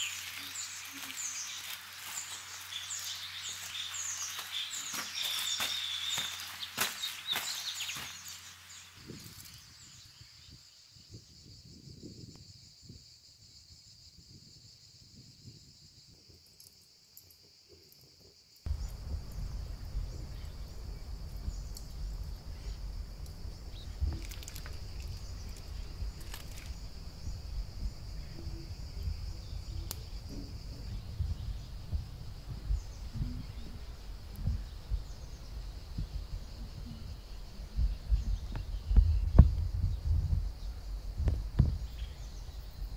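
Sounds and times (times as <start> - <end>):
rustle: 0.0 - 11.0, 15.2 - 42.9
insects chirring: 0.0 - 42.9
low rumbling noise: 18.7 - 42.9.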